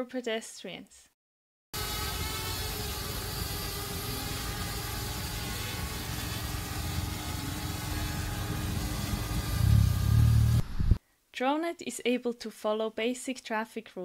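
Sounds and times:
drone propellers humming: 1.8 - 10.7.

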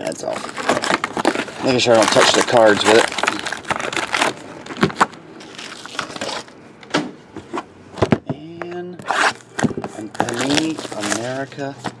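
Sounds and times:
foil wrappers crinkling: 0.0 - 6.5, 9.2 - 12.0
light knocks of packs and box: 9.5 - 12.0.

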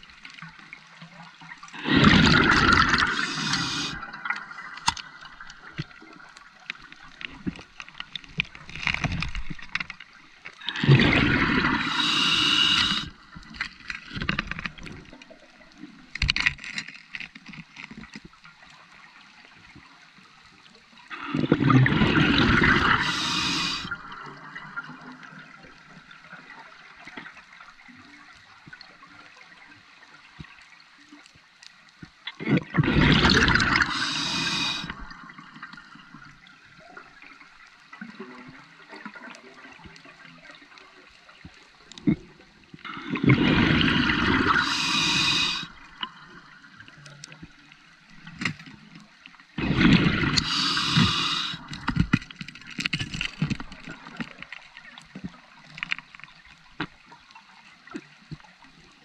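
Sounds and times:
exhaled bubbles rushing underwater: 1.5 - 6.0, 10.6 - 13.5, 21.1 - 25.6, 32.4 - 37.2, 42.8 - 46.8, 49.5 - 52.3
regulator hissing: 3.1 - 4.0, 11.8 - 13.1, 23.0 - 23.9, 33.8 - 34.9, 44.5 - 45.7, 50.4 - 51.7.

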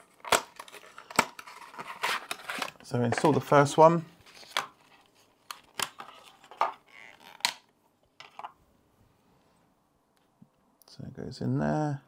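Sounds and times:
plastic packaging snapping and clicking: 0.0 - 3.3.

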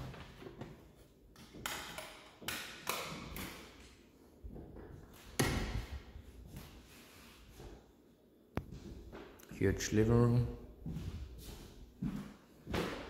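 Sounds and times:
footsteps on hardwood floor: 10.8 - 13.0.

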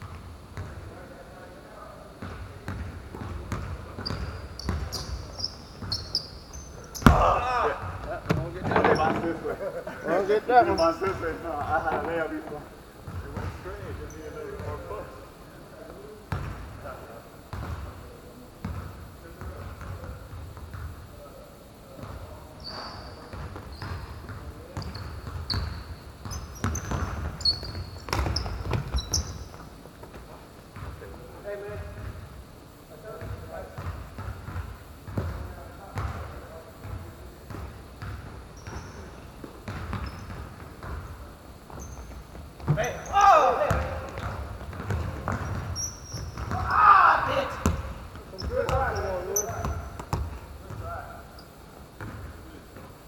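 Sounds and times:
shoe squeaks: 4.0 - 7.8, 8.4 - 9.5, 10.6 - 12.4, 14.0 - 14.4, 22.6 - 29.6, 38.6 - 39.2, 39.9 - 40.6, 41.7 - 44.4, 45.3 - 46.6, 48.3 - 49.9, 51.3 - 51.6
basketball bouncing: 6.8 - 9.2, 16.3 - 16.7, 23.3 - 29.4, 36.0 - 36.2, 36.8 - 41.1, 41.7 - 46.9, 47.6 - 50.9, 52.0 - 52.3
person shouting: 7.1 - 7.8, 43.1 - 43.7, 46.6 - 47.6.

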